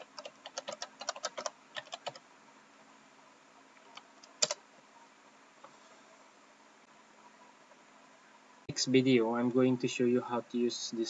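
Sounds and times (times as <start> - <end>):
keyboard typing: 0.0 - 2.2, 3.8 - 4.6.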